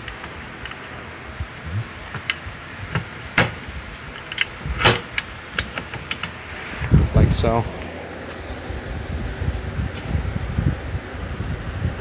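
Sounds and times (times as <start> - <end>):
sharp metal clicks and knocks: 2.0 - 6.4.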